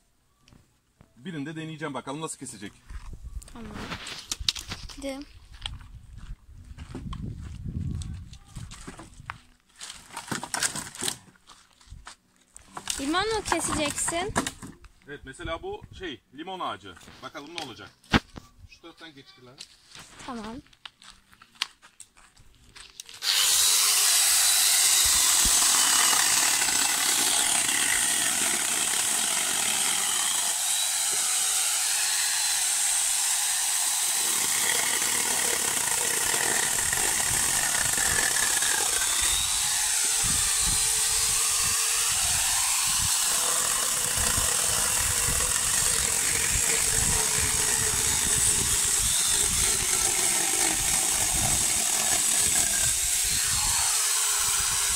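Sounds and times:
angle grinder chainsaw cutting branch: 12.8s - 14.7s, 23.2s - 54.9s.

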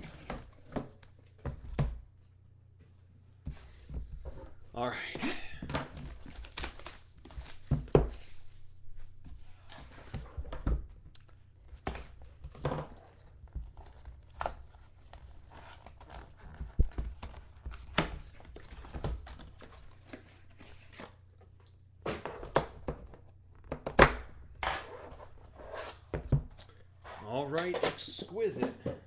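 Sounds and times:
plastic wrap tearing and crinkling: 6.0s - 8.3s.

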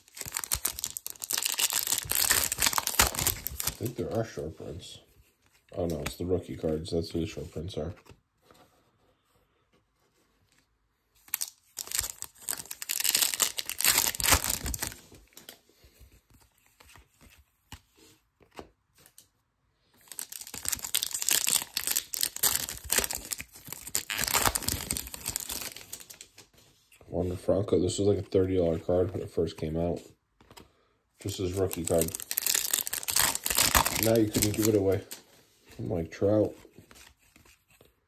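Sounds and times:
foil wrapper tearing and crinkling: 0.0s - 3.9s, 11.3s - 15.1s, 20.0s - 26.2s, 31.3s - 35.1s.

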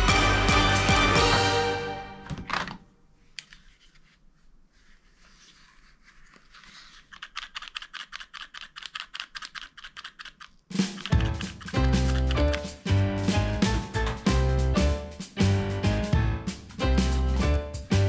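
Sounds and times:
loud music: 0.0s - 2.2s, 11.2s - 18.0s
fast run of light clicks: 7.1s - 12.7s.

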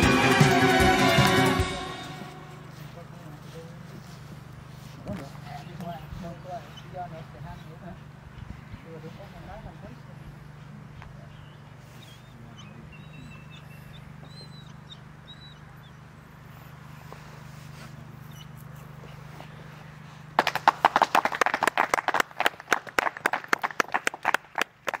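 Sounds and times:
steady low hum: 0.0s - 20.4s
faint birds chirping: 2.3s - 20.4s
rapid hand clapping: 20.4s - 25.0s.

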